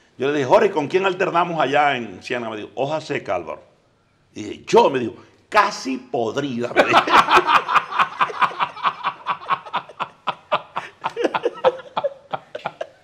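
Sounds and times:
men laughing heartily: 6.8 - 13.0.

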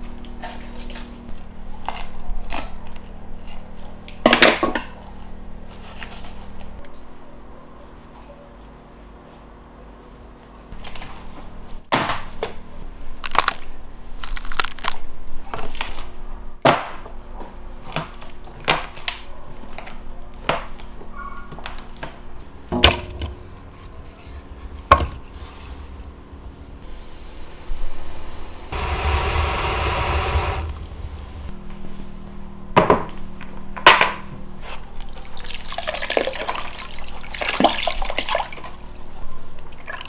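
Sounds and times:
faint steady hum: 25.3 - 32.7.

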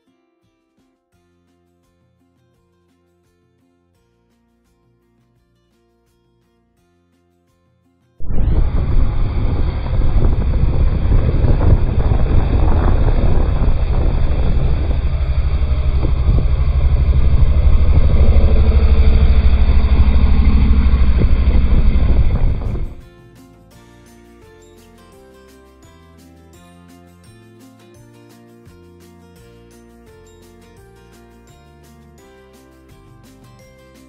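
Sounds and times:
motorcycle engines running: 8.2 - 23.0.

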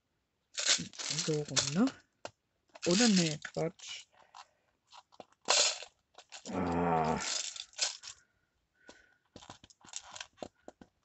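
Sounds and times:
tins clicking and scraping: 0.6 - 2.0, 2.8 - 8.2.

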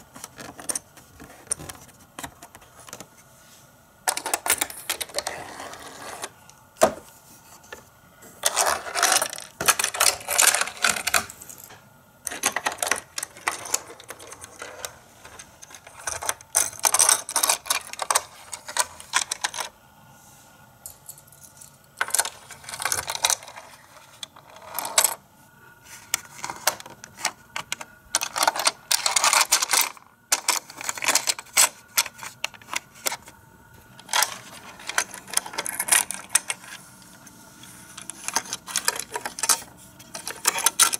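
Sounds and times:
toy cars clicking and clattering: 8.4 - 11.4, 12.3 - 19.7, 21.6 - 25.2, 26.1 - 33.3, 34.0 - 36.8, 38.0 - 40.9.

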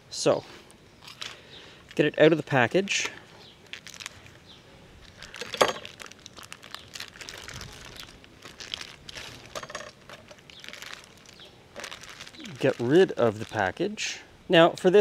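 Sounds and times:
plastic wrap crinkling and tearing: 3.6 - 4.4, 5.0 - 13.8.

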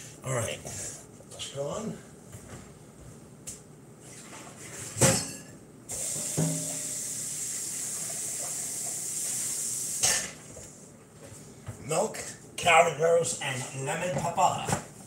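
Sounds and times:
running water hiss: 5.9 - 10.4.

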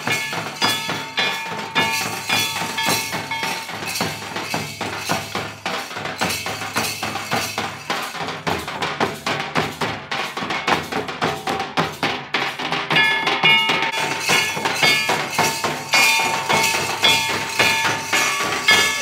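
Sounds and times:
sharp high-pitched strikes: 0.0 - 6.9, 12.9 - 19.0
fast drumming: 0.0 - 19.0.

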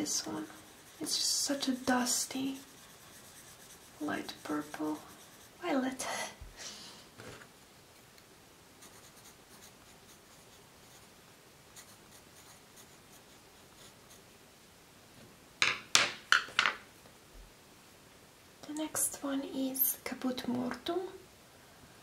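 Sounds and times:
pencil scratching on paper: 0.0 - 5.9, 8.8 - 11.1, 11.7 - 14.2.

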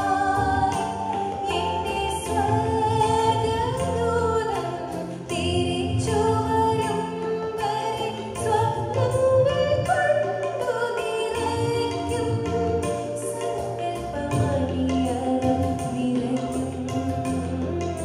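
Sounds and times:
instrumental accompaniment: 0.0 - 18.0
woman singing into a microphone: 0.0 - 18.0.

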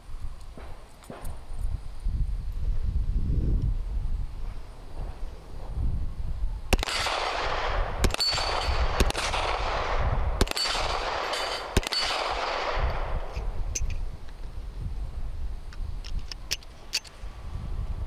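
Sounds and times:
high ping from steel targets: 6.7 - 13.2
pistol shots echoing: 6.7 - 13.3.

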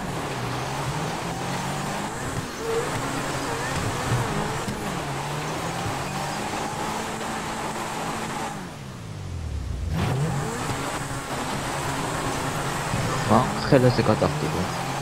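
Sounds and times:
game car engine revving: 0.0 - 15.0.

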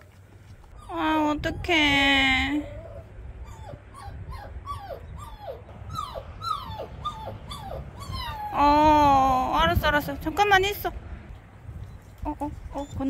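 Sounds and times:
puppy whimpering: 0.6 - 9.1, 12.4 - 13.0.

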